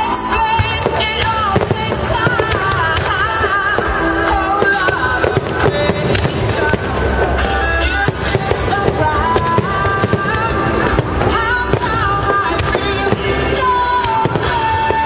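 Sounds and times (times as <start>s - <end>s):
fireworks bursting and crackling: 0.0s - 15.0s
music playing: 0.0s - 15.0s.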